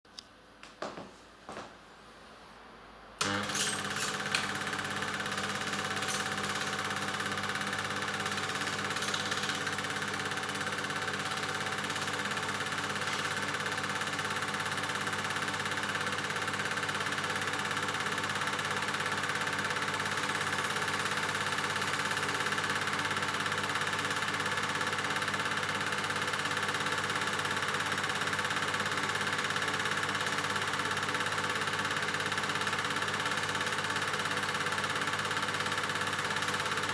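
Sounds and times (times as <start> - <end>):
projector switch clicks: 3.2 - 4.6
film projector whirring: 3.2 - 36.9.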